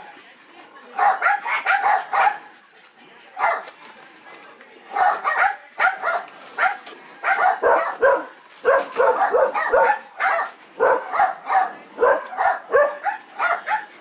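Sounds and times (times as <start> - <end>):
puppies barking: 1.0 - 2.6, 4.9 - 14.0.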